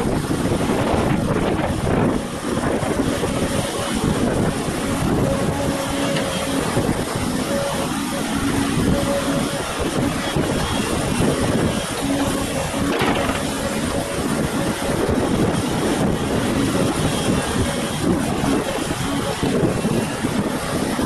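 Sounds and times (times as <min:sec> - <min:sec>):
excavator running: 0:00.0 - 0:21.0.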